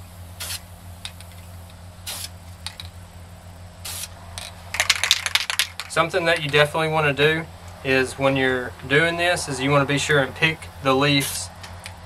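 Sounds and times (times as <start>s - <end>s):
spray paint can hissing: 0.1s - 3.0s, 3.8s - 6.0s, 11.2s - 11.5s
rapid rustling clicks: 4.4s - 6.6s.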